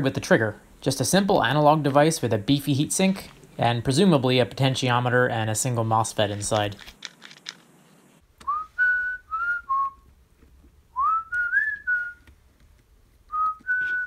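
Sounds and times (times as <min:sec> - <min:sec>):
faint clicks of small parts: 0:06.4 - 0:07.7
person whistling a tune: 0:08.4 - 0:10.0, 0:11.0 - 0:12.3, 0:13.3 - 0:14.0.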